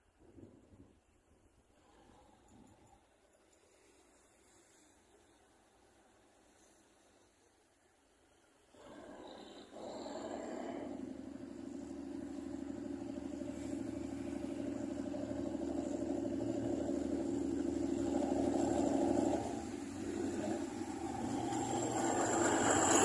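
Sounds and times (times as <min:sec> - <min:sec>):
diesel locomotive engine drone: 0:09.7 - 0:23.0.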